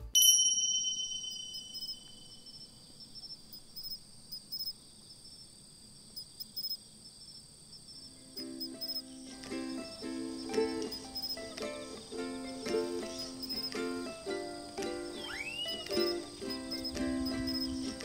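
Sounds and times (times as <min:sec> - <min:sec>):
bright ringing tone: 0:00.0 - 0:02.8
crickets trilling: 0:00.2 - 0:18.0.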